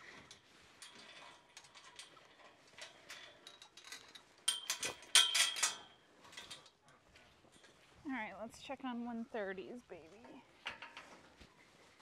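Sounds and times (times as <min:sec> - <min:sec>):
chain rattling against pipe: 0:00.0 - 0:06.8.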